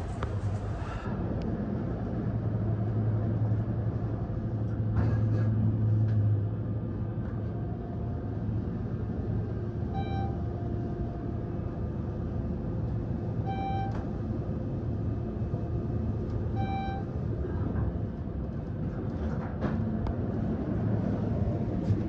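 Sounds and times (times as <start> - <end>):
elevator ride hum: 0.0 - 22.0
short electronic beeps: 9.9 - 10.4, 13.5 - 14.0, 16.6 - 17.1.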